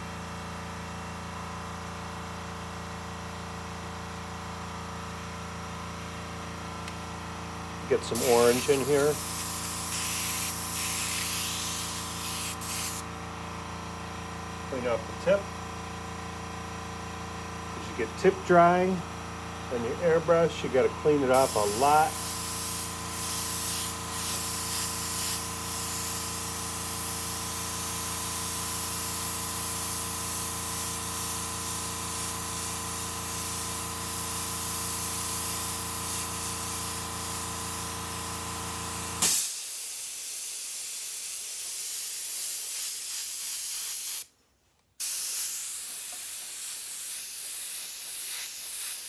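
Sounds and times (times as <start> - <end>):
airbrush spraying hiss: 8.0 - 13.1, 21.3 - 37.9, 39.2 - 44.3, 45.0 - 49.0
short sharp burst: 39.2 - 44.3.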